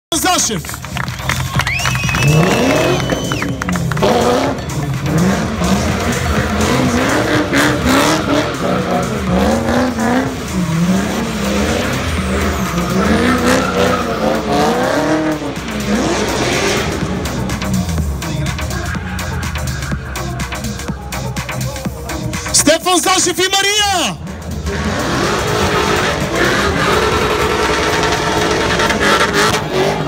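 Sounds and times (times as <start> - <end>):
car engine revving: 0.4 - 23.4, 24.2 - 30.0
tyres squealing: 5.1 - 14.9.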